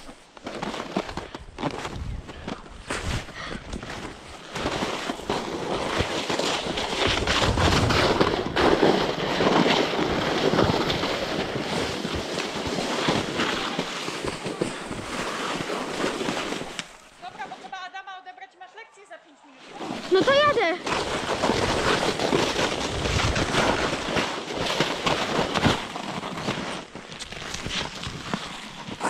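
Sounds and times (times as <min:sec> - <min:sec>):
sled scraping over snow: 0:00.0 - 0:18.0, 0:19.6 - 0:29.0
wind on microphone: 0:01.8 - 0:04.2
sled knocking over bumps: 0:03.9 - 0:17.5, 0:19.9 - 0:27.9.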